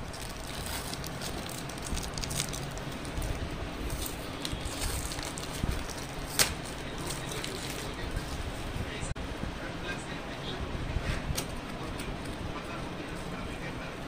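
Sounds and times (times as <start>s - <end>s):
plastic wrapping crinkling: 0.0s - 8.5s
cardboard parcel handled: 0.0s - 8.6s.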